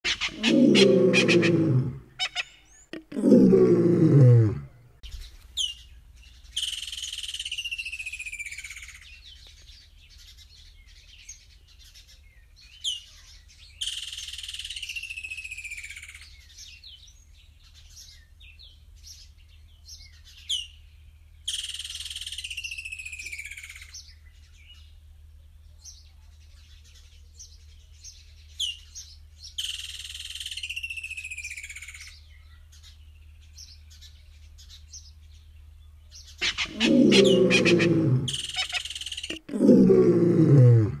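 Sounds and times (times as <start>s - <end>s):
loud low-pitched sounds: 36.5s - 38.5s.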